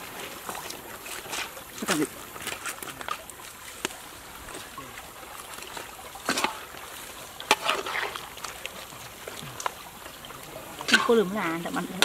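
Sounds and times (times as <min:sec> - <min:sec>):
water trickling and bubbling: 0:00.0 - 0:12.0.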